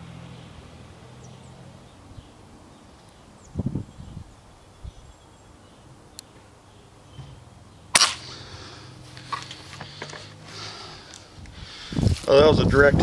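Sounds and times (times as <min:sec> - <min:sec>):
air rifle crack: 0:07.9 - 0:11.6.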